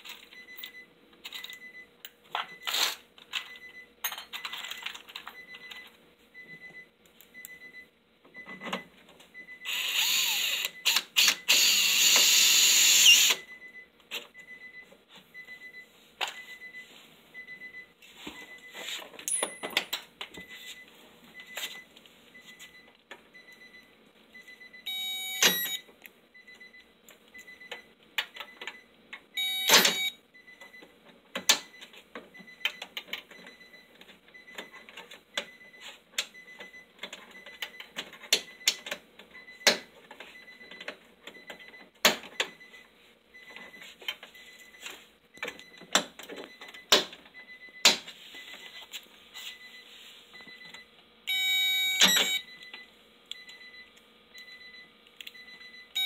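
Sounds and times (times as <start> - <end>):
loud buzzing beeps: 9.6 - 13.6, 24.9 - 25.8, 29.4 - 30.5, 51.3 - 52.5.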